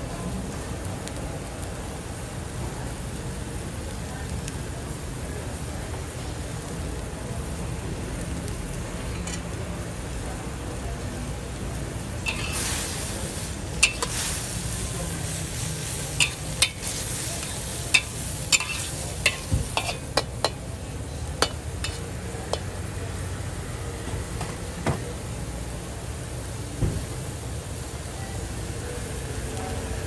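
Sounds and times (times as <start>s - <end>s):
food sizzling: 0.0s - 30.0s
metal spatula clanking on wok: 12.2s - 12.7s, 13.8s - 14.2s, 16.2s - 20.6s, 21.4s - 22.7s.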